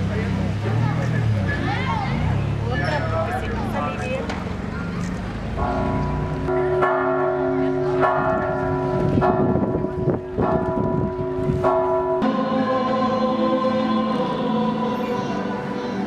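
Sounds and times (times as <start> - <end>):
church bell ringing: 5.6 - 16.0
choir singing: 12.2 - 16.0.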